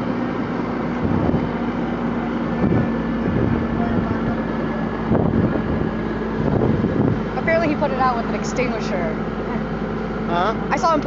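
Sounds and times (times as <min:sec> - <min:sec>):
pump engine humming: 0:00.0 - 0:11.0
wind on microphone: 0:01.0 - 0:01.6, 0:02.6 - 0:07.8.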